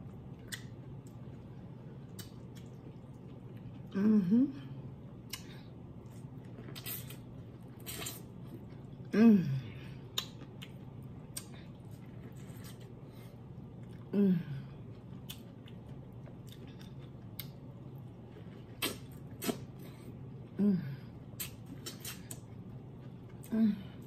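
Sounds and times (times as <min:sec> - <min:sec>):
person chewing corn: 0:00.0 - 0:04.0, 0:05.2 - 0:09.1, 0:10.0 - 0:14.1, 0:14.8 - 0:20.5, 0:21.3 - 0:24.0
person humming mmm: 0:03.9 - 0:04.8, 0:09.1 - 0:10.0, 0:14.1 - 0:14.8, 0:20.6 - 0:21.1
mouth clicks and smacks: 0:10.1 - 0:11.6.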